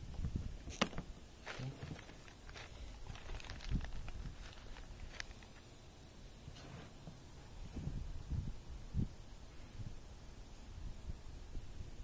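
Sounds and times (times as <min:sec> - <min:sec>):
plastic bag rustling: 0:00.8 - 0:05.6.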